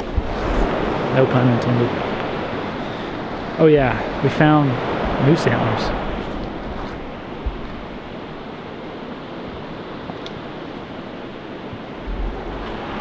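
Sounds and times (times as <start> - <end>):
river rushing: 0.0 - 13.0
low thump: 6.7 - 7.8.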